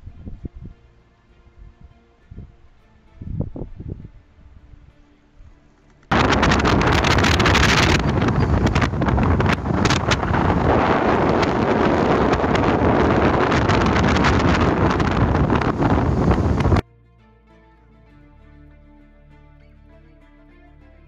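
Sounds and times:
strong wind on microphone: 0.0s - 0.8s, 1.6s - 4.9s, 6.1s - 16.8s.

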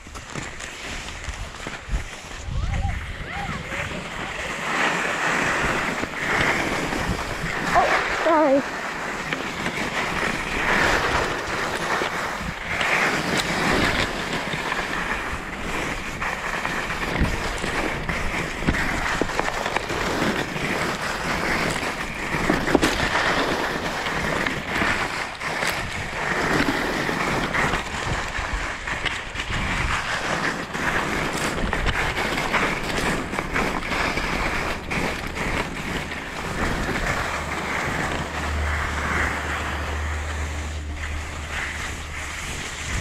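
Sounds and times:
skis knocking on bumps: 0.0s - 43.0s
skis scraping over snow: 0.0s - 43.0s
wind on microphone: 0.9s - 43.0s.

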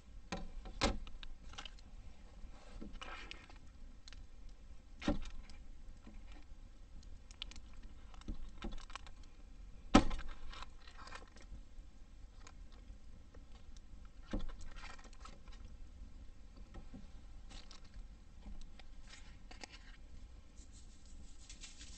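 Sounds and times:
paper rustling: 20.6s - 21.9s.

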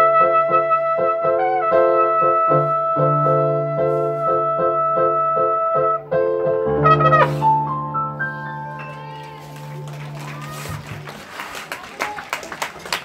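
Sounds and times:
trumpet sustained note: 0.0s - 6.2s, 6.8s - 7.7s
piano chords: 0.0s - 11.1s.

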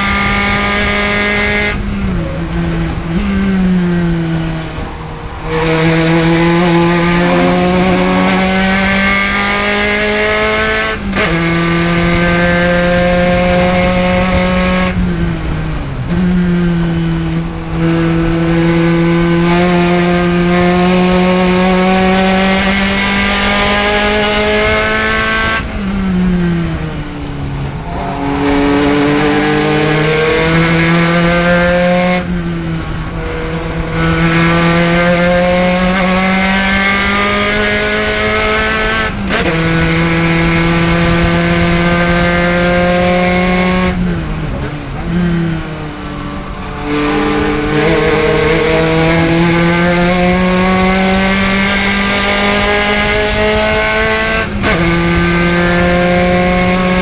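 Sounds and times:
race car engine at high revs: 0.0s - 57.0s.

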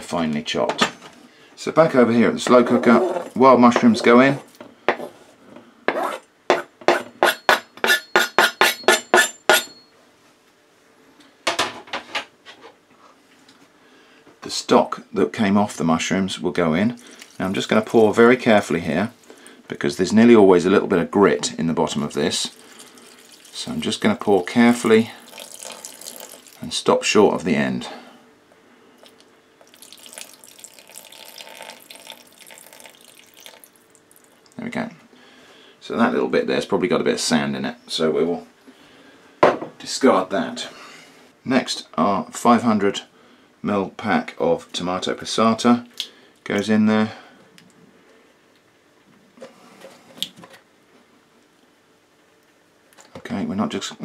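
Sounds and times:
knife clinking on ceramic pot: 6.5s - 9.8s
liquid trickling into pot: 22.4s - 23.8s, 25.2s - 26.6s, 29.6s - 34.6s.

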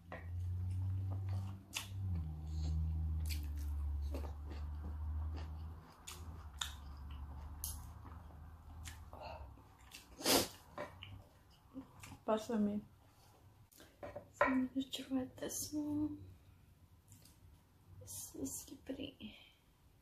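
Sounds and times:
close chewing with wet mouth clicks: 1.3s - 9.1s.

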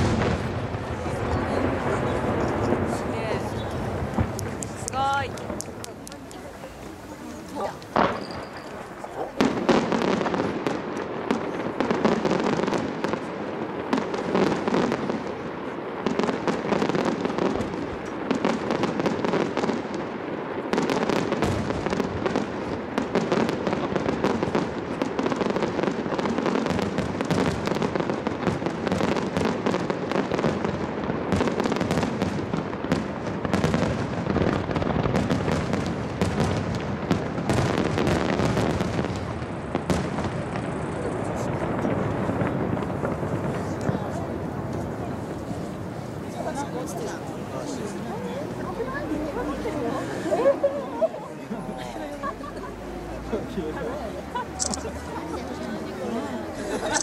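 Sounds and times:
echo of firework bursts: 0.0s - 50.5s
firework shells bursting: 1.6s - 13.4s.

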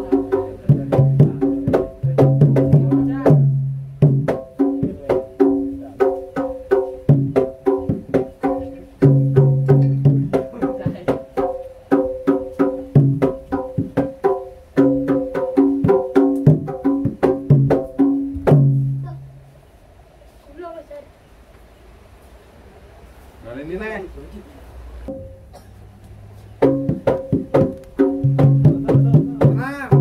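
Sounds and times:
ringing pitched struck notes: 25.1s - 25.7s
drum and wood strokes: 26.2s - 30.0s.

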